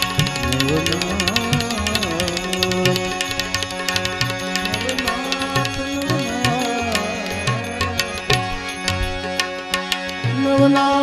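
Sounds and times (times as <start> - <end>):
man singing: 0.0 - 8.5, 10.3 - 11.0
percussion beat: 0.0 - 10.9
harmonium notes: 0.0 - 11.0.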